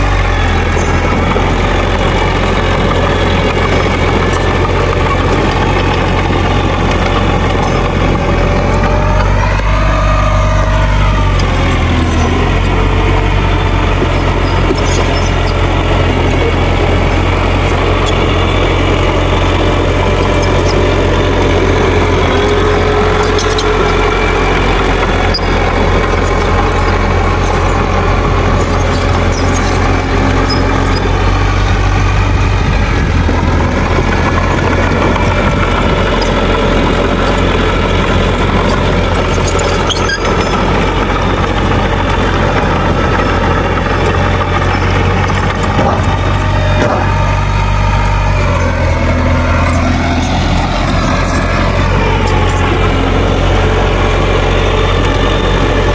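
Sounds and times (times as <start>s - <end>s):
bulldozer diesel engine: 0.0s - 55.9s.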